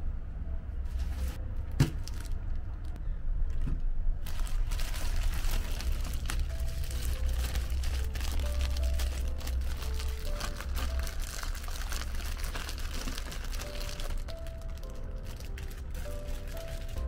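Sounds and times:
plastic bag crinkling: 1.9s - 2.4s, 4.2s - 17.0s.

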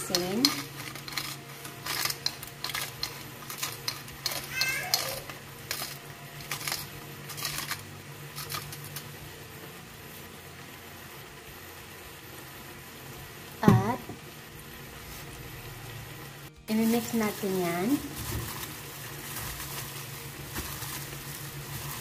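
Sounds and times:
beef frying sizzle: 0.0s - 22.0s
salt shaken from plastic bag: 16.8s - 22.0s.

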